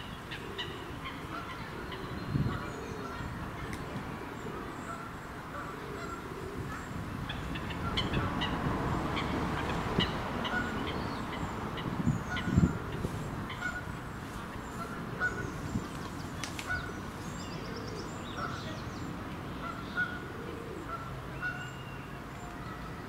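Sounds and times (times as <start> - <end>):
outdoor background noise: 0.0 - 23.0
water birds honking: 4.4 - 11.5, 12.2 - 14.0, 14.6 - 15.6, 19.6 - 22.4.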